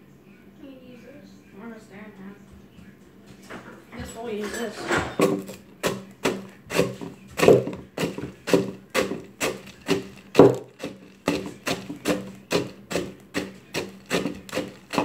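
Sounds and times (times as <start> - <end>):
utensil knocking in plastic cup: 5.2 - 15.0.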